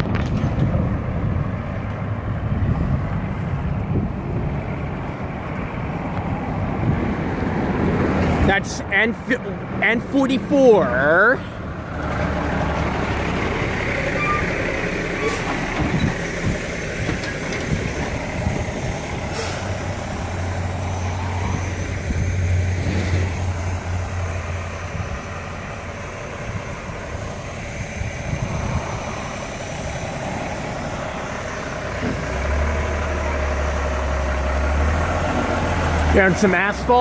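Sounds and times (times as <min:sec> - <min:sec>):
truck engines droning: 0:00.0 - 0:37.0
tyre road noise: 0:00.0 - 0:37.0
short hiss: 0:19.3 - 0:19.8.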